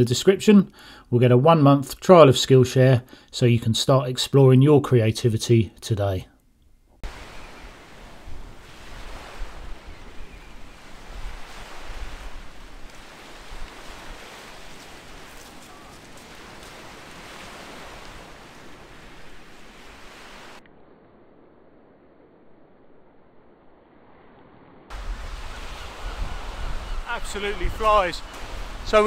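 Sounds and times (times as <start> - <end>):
waves washing up shingle beach: 7.0 - 20.6, 24.9 - 29.0
wind rumble on microphone: 7.0 - 29.0.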